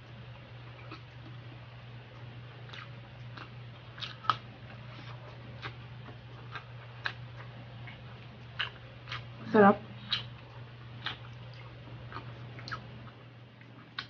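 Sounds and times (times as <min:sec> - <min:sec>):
person chewing food: 0:00.0 - 0:14.0
steady low hum: 0:00.0 - 0:14.0
wet mouth clicks and smacks: 0:10.0 - 0:10.4.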